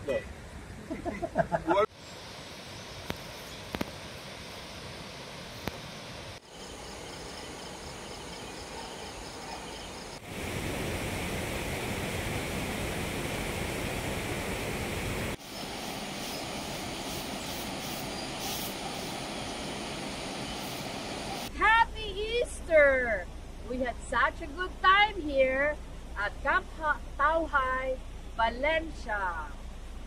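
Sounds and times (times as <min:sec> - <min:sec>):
steady rushing outdoor noise: 0:00.0 - 0:21.9.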